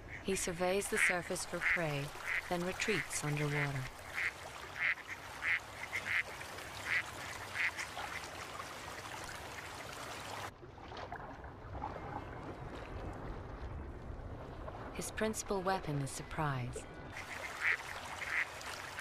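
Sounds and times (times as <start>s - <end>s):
ducks quacking: 0.0s - 8.2s, 17.2s - 19.0s.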